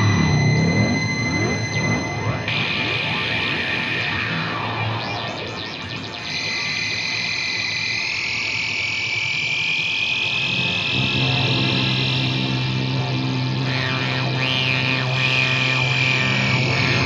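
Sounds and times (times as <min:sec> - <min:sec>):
low steady drone: 0:00.0 - 0:17.0
high sustained tones rising: 0:10.2 - 0:17.0.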